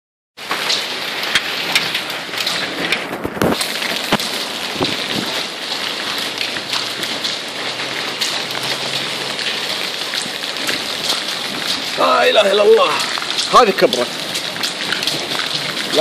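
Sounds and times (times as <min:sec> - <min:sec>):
hailstones hissing on ground: 0:00.4 - 0:16.0
sharp hailstone knocks: 0:00.5 - 0:05.3.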